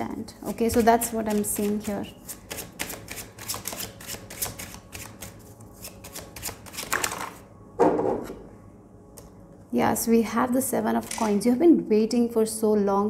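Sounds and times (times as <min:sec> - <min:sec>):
cards being shuffled: 0:00.7 - 0:07.4, 0:11.0 - 0:11.4.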